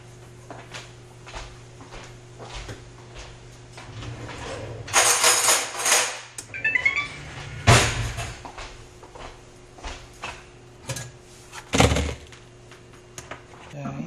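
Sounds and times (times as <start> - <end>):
electronic beeps: 6.4 - 7.6.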